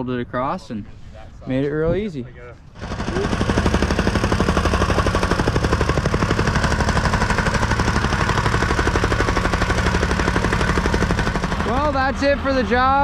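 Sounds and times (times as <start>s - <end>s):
rammer engine drone: 2.7s - 13.0s.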